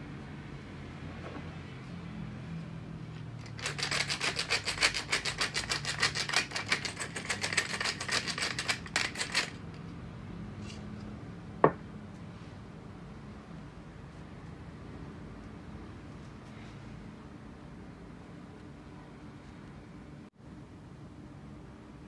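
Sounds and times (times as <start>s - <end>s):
pepper mill grinding: 3.4s - 9.8s.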